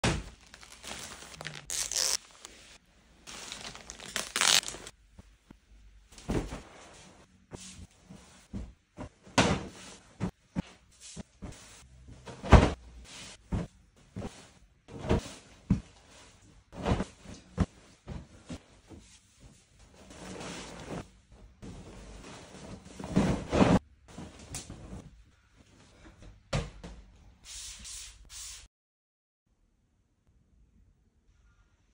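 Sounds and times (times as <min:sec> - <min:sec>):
plastic packaging crinkling: 0:00.4 - 0:02.7, 0:03.3 - 0:04.9
scissors cutting plastic bag: 0:01.4 - 0:02.2
bedding rustling and whooshing: 0:06.2 - 0:25.1.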